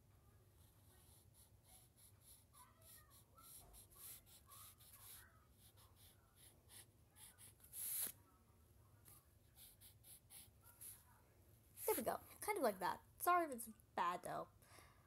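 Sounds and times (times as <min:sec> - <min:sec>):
pencil scratching on paper: 0:00.6 - 0:08.2, 0:09.6 - 0:11.0.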